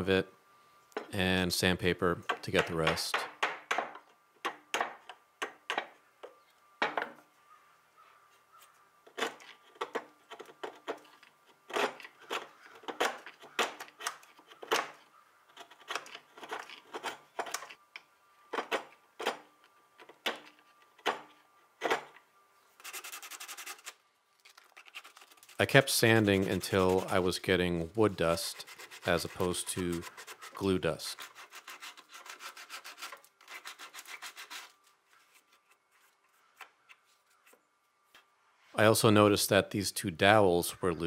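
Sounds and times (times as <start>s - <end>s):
chisel scraping wood: 9.1s - 17.8s, 24.8s - 34.8s
hand sanding with sandpaper: 22.8s - 23.9s, 24.9s - 36.4s.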